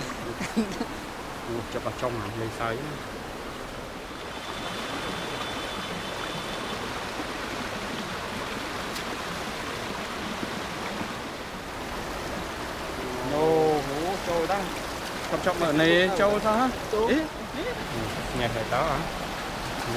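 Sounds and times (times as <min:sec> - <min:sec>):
river water rushing: 0:00.0 - 0:19.9.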